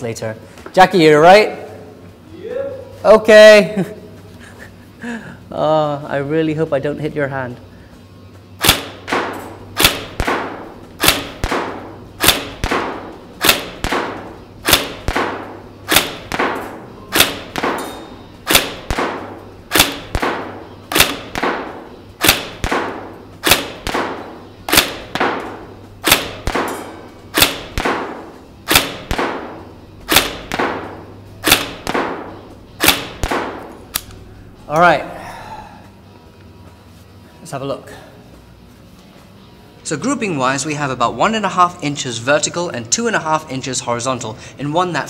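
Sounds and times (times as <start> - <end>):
airsoft rifle shots: 8.6 - 33.8.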